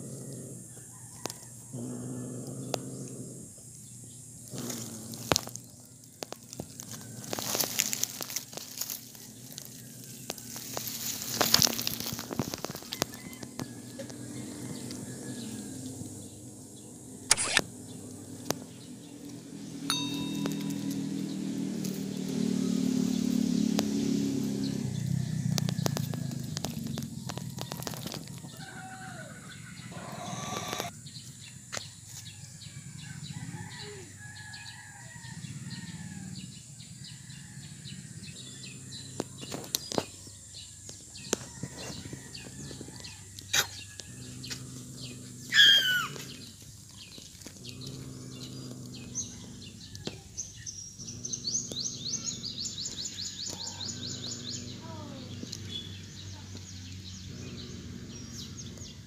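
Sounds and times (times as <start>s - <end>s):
birds chirping and calling: 0.0s - 59.0s
rustles in dry leaves: 4.3s - 16.7s, 17.8s - 32.6s
low hum: 14.0s - 25.0s
loud falling bird call: 45.5s - 46.3s.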